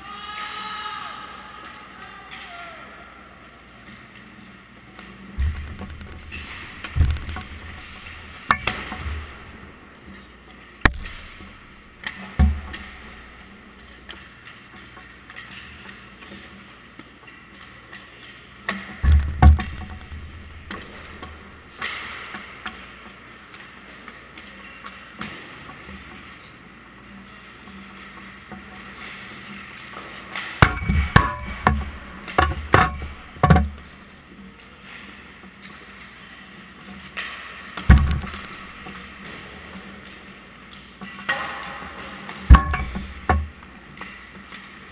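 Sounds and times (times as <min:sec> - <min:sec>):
indoor rink hum: 0:00.0 - 0:44.9
hockey sticks and pucks cracking: 0:03.8 - 0:26.6
rink hum: 0:05.3 - 0:13.9, 0:19.0 - 0:21.8, 0:37.9 - 0:40.0.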